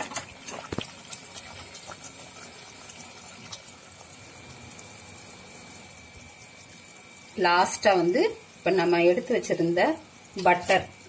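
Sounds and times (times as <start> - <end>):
thick gravy bubbling and popping: 0.0 - 8.7.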